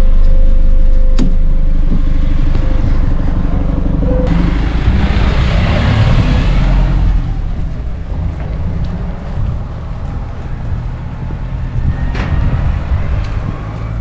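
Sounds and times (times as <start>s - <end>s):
minibus engine rumbling: 0.0s - 14.0s
passengers stepping down: 0.0s - 14.0s.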